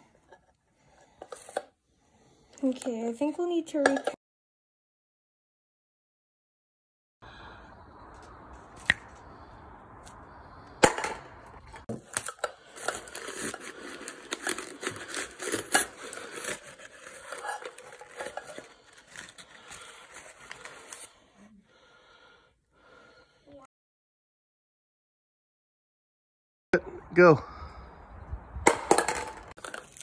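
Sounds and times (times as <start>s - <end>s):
paper crinkling and rustling: 11.9s - 21.2s, 29.6s - 30.0s.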